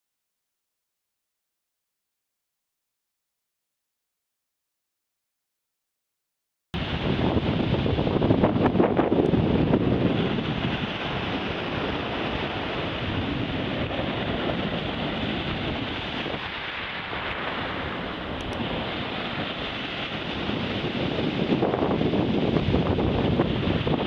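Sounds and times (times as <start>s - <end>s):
sea surf breaking on beach: 6.8s - 24.0s
wind buffeting microphone: 6.8s - 24.0s.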